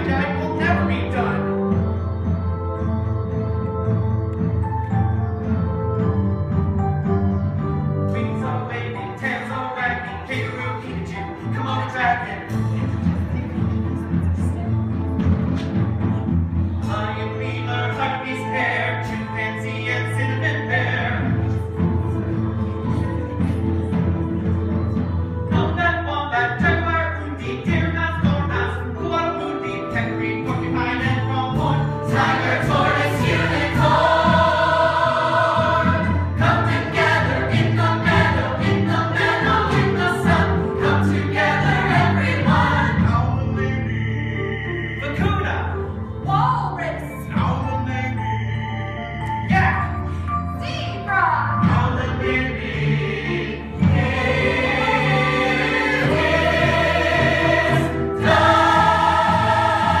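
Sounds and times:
instrumental accompaniment: 0.0 - 60.0
choir singing: 31.5 - 43.3, 51.7 - 60.0.

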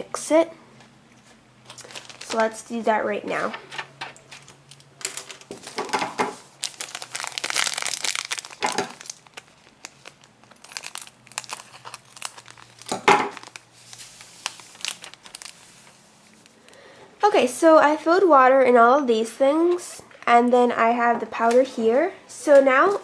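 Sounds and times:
foil packets crinkling: 1.6 - 2.8, 3.7 - 16.9.

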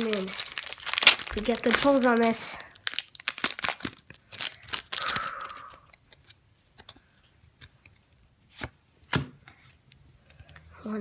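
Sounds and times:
foil wrapper crinkling and tearing: 0.0 - 6.0
cards rustling and clicking: 0.0 - 10.6.

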